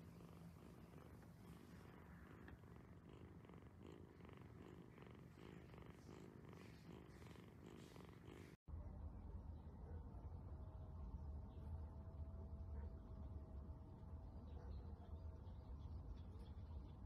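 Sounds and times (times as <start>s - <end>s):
kitten purring: 0.0s - 8.6s.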